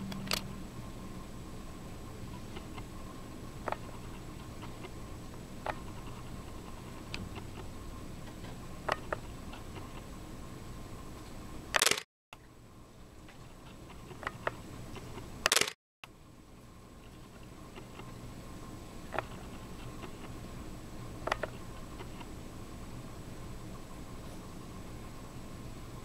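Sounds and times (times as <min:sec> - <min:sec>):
steady low hum: 0:00.0 - 0:26.0
camera shutter clicking: 0:11.8 - 0:12.0, 0:15.5 - 0:15.8.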